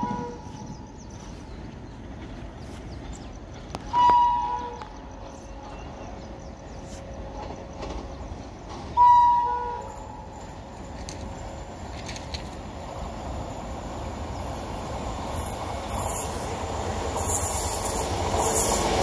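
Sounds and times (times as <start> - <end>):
locomotive horn blasts: 0.0 - 0.7, 3.9 - 4.9, 9.0 - 10.2.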